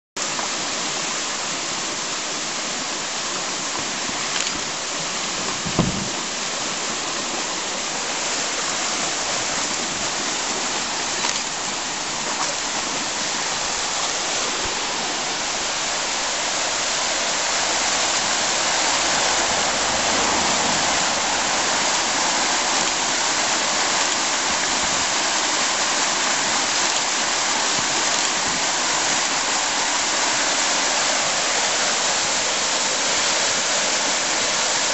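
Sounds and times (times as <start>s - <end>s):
river rushing over rocks: 0.2s - 34.9s
low thump: 5.5s - 6.3s.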